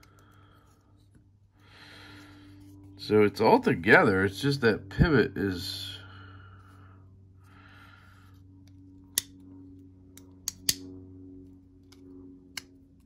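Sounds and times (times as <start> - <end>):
faint steady hum: 0.0 - 13.0
folding knife clicks: 10.2 - 10.9.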